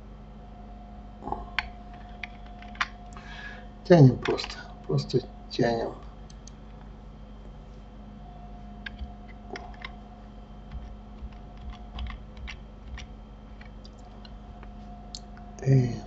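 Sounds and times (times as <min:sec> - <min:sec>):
low electrical hum: 0:00.0 - 0:16.0
keyboard and mouse clicks: 0:01.5 - 0:03.2, 0:06.3 - 0:06.6, 0:08.8 - 0:10.0, 0:10.7 - 0:15.4.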